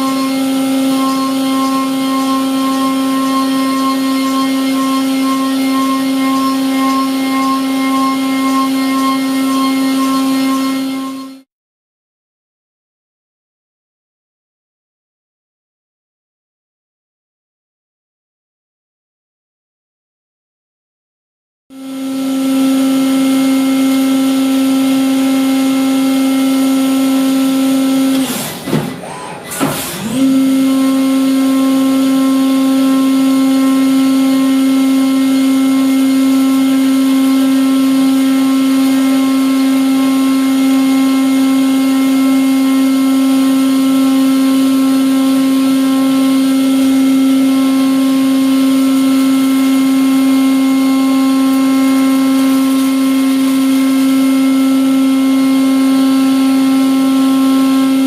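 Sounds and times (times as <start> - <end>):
mill spindle humming: 0.0 - 11.4.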